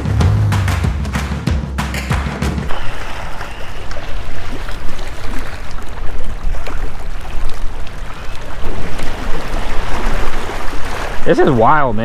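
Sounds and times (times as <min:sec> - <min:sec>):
small waves splashing against rocks: 0:02.7 - 0:12.0.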